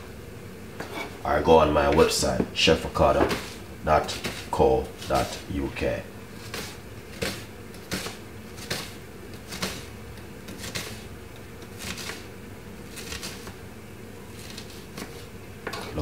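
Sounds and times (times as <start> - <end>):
knife slicing spring onion: 3.3 - 5.4, 6.4 - 9.9, 10.5 - 13.6.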